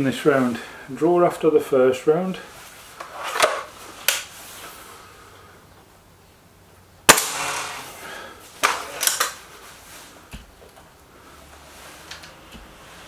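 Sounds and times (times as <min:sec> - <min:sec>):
air rifle shot: 0:07.1 - 0:08.3.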